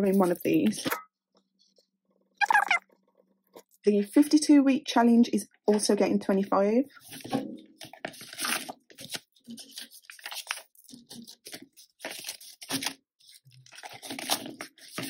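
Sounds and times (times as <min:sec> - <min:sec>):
plastic and banknotes rustling: 0:00.0 - 0:00.9, 0:06.9 - 0:15.0.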